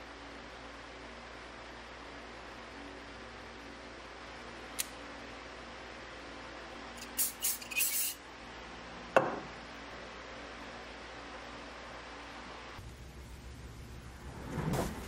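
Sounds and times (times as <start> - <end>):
metal parts scraping: 7.0 - 8.2.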